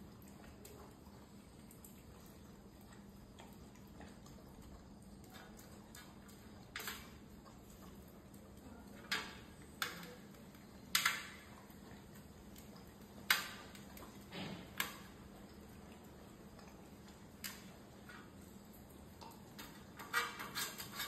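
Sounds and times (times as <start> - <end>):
dog licking: 0.0 - 8.6.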